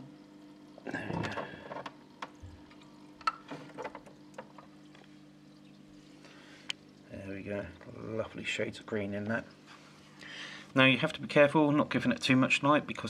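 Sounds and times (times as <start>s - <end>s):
water dripping: 0.2s - 9.6s.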